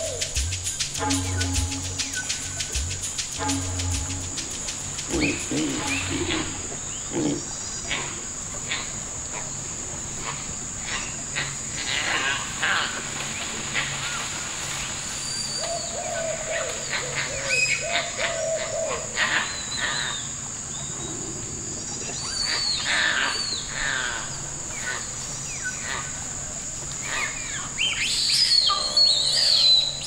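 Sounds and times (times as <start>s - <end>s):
leaves and branches rustling: 0.0s - 7.1s, 11.6s - 18.1s
short chirping calls: 0.0s - 7.1s
high-pitched insect drone: 0.0s - 7.5s
lower arching calls: 0.0s - 9.5s, 27.0s - 30.0s.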